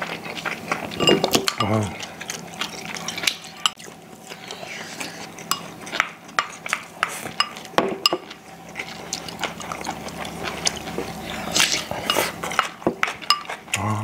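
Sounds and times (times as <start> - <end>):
people eating and sipping: 0.0 - 14.0
spoons clinking against ceramic bowls: 1.0 - 2.0, 2.6 - 3.8, 5.4 - 8.4, 11.4 - 13.6.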